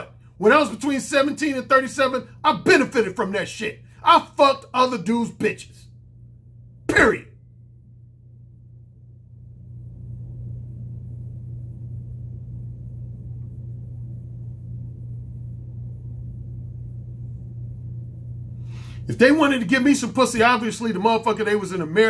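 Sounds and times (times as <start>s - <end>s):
steady low hum: 0.0s - 22.0s
rumble: 5.8s - 19.6s.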